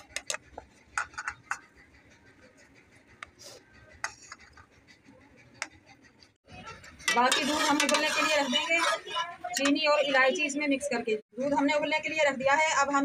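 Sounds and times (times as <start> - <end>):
spoon scraping in metal pan: 6.8 - 10.2.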